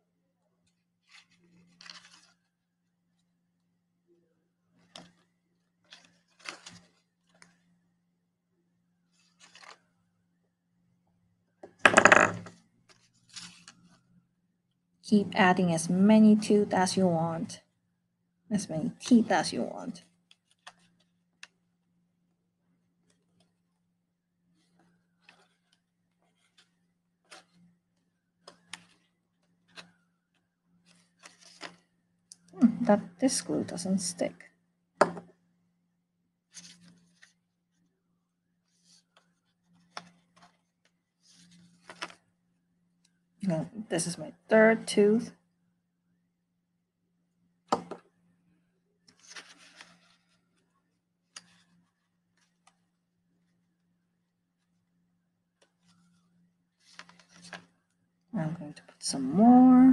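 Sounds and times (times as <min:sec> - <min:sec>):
paper rustling: 0:00.6 - 0:03.3, 0:04.7 - 0:07.8, 0:09.1 - 0:10.0, 0:12.8 - 0:14.1, 0:20.1 - 0:21.6, 0:24.5 - 0:32.0, 0:36.5 - 0:37.9, 0:38.6 - 0:42.3, 0:49.0 - 0:53.0, 0:55.6 - 0:58.0.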